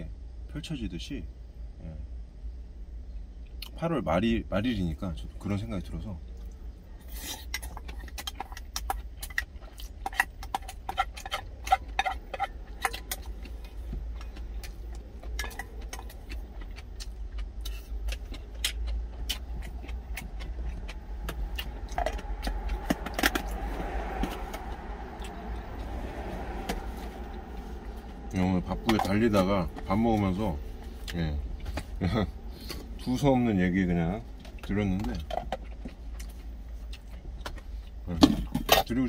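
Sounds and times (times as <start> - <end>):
steady low rumble: 0.0 - 39.0
car passing by: 20.4 - 32.0.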